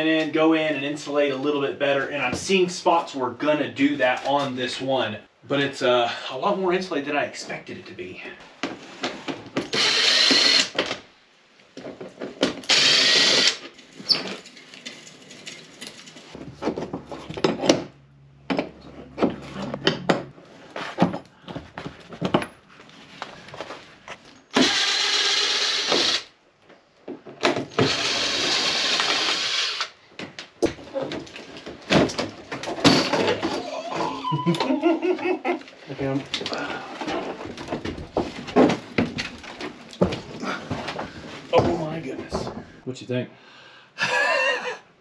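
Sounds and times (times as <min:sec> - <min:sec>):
power drill running: 0:09.7 - 0:10.8, 0:12.7 - 0:13.6, 0:24.6 - 0:26.3, 0:27.8 - 0:29.9.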